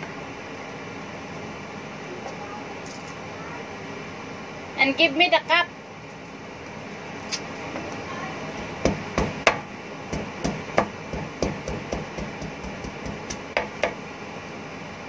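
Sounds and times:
steady background noise: 0.0s - 15.0s
knife chopping on wooden board: 8.6s - 14.0s.

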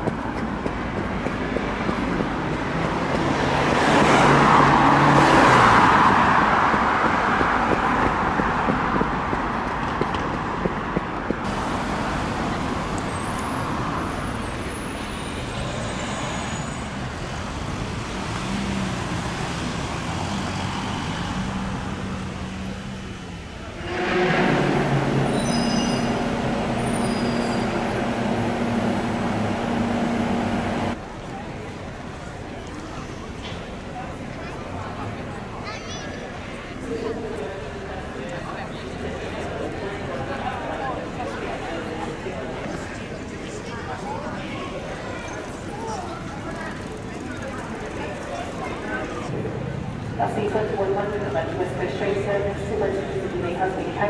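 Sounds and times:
road traffic: 0.0s - 54.0s
bus engine humming: 10.6s - 32.6s
vehicle passing: 15.6s - 31.0s.

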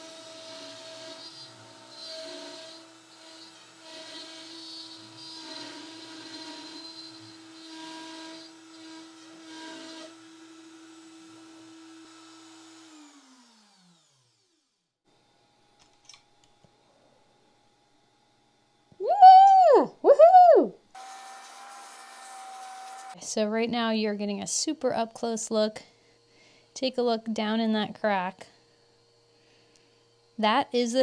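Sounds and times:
router cutting plywood: 0.0s - 14.6s, 21.0s - 23.2s
router winding down: 0.0s - 14.7s.

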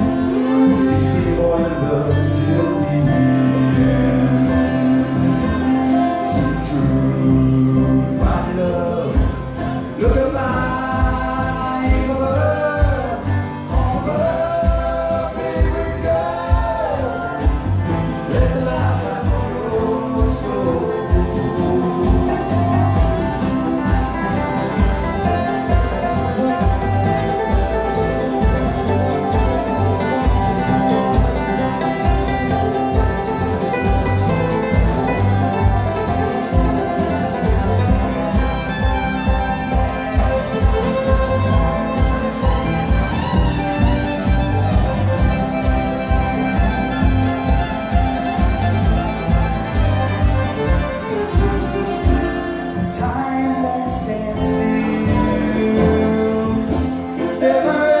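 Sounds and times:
man singing: 0.0s - 23.0s, 52.6s - 58.0s
acoustic guitar: 0.0s - 58.0s
banjo: 0.0s - 58.0s
dobro: 0.0s - 58.0s
fiddle: 0.0s - 58.0s
upright bass: 0.0s - 58.0s.

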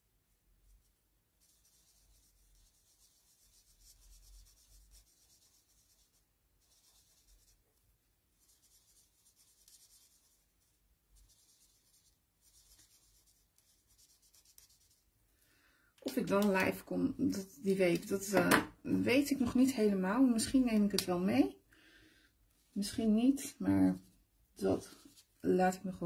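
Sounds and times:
marker scratching on card: 1.4s - 7.6s, 8.3s - 15.0s.

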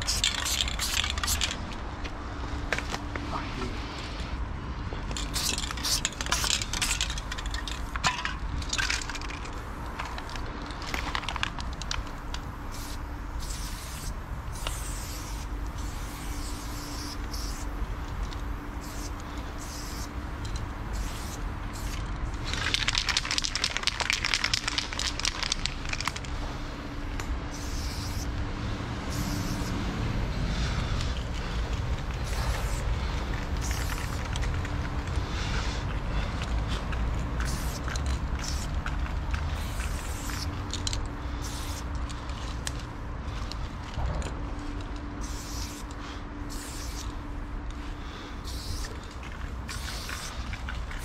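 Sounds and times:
spray paint can hissing: 0.0s - 1.6s, 5.1s - 8.0s, 11.0s - 26.3s, 27.5s - 28.3s, 29.0s - 29.8s, 30.5s - 35.8s, 37.3s - 42.5s, 45.2s - 47.1s, 48.4s - 51.0s.

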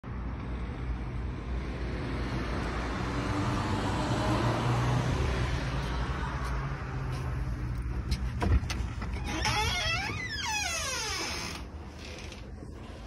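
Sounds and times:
road traffic rumble: 0.0s - 13.0s
vehicle passing: 1.6s - 8.3s.

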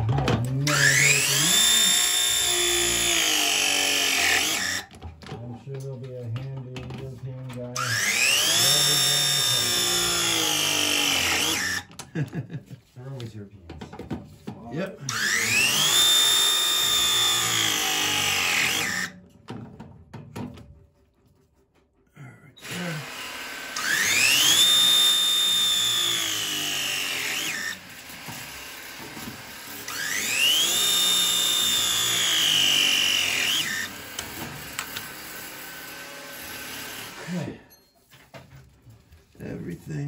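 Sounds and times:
pipe press tool motor whine: 0.6s - 5.0s, 7.8s - 12.0s, 15.0s - 19.2s, 22.6s - 37.6s.

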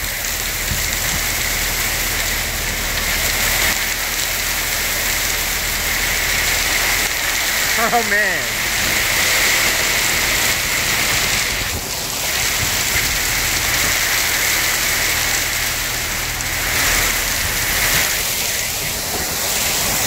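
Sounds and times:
hail and rain pelting: 0.0s - 20.0s.

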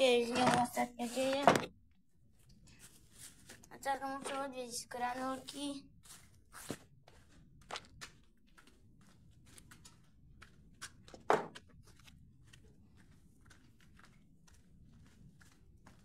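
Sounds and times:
footsteps on concrete floor: 5.1s - 16.0s.

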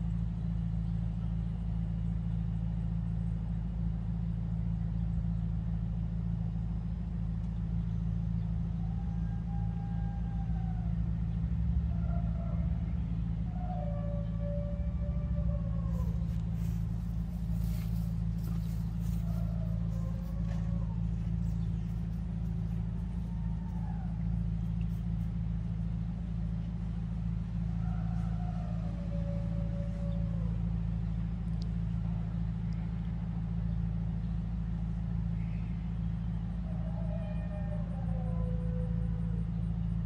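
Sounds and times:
motor equipment droning: 0.0s - 40.0s
faint falling wails: 8.8s - 32.9s.

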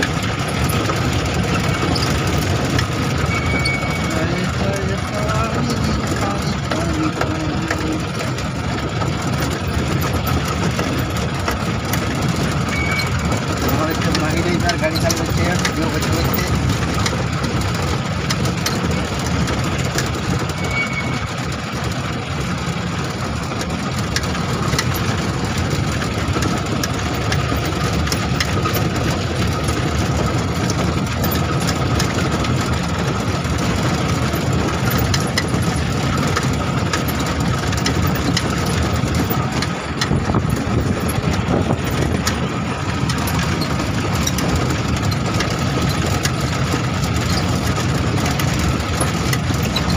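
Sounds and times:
road noise: 0.0s - 49.9s
vehicle engine running: 0.0s - 49.9s.

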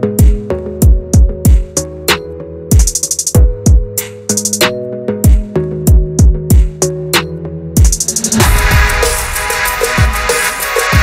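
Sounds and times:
electronic music with drum machine: 0.0s - 11.0s
deep kick drums: 0.2s - 1.7s, 2.8s - 4.0s, 5.3s - 6.8s, 7.8s - 10.4s
synth chords: 4.8s - 11.0s
hi-hat roll: 7.8s - 11.0s.

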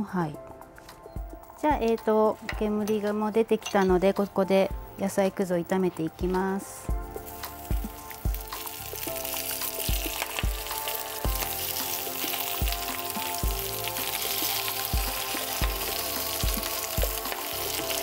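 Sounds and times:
vegetables sizzling in hot oil: 7.1s - 18.0s.

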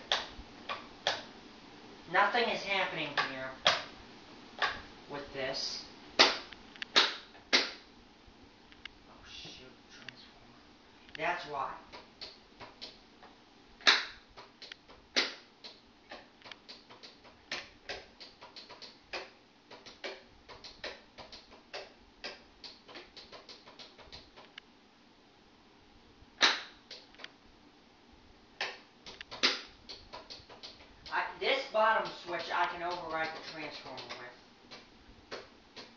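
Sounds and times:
wall switches clicking: 28.6s - 31.2s.

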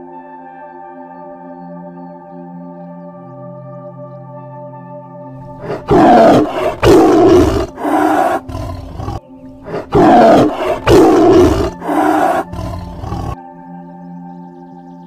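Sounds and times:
tiger roaring: 5.5s - 13.4s.

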